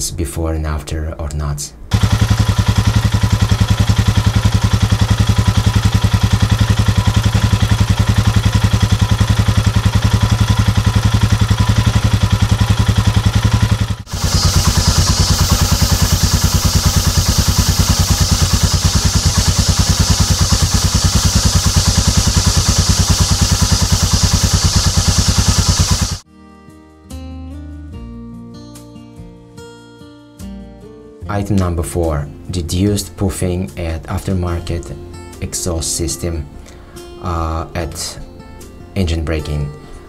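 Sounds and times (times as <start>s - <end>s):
motorcycle engine idling: 1.9s - 26.2s.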